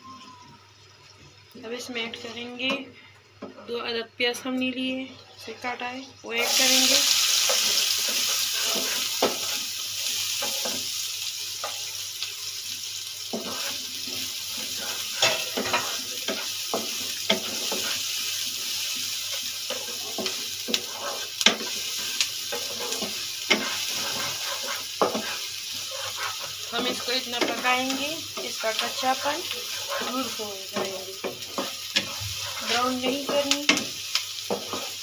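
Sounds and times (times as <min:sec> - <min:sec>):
onions sizzling in hot oil: 0:04.8 - 0:35.0
spatula scraping a pan: 0:07.3 - 0:10.9, 0:13.3 - 0:35.0.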